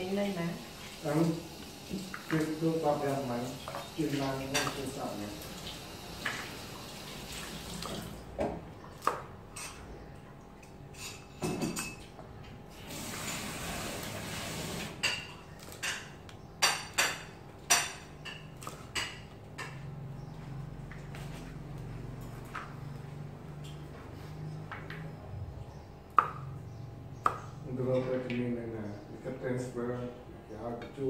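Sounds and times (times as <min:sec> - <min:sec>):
knife chopping on a board: 0:08.4 - 0:09.3, 0:26.1 - 0:26.4.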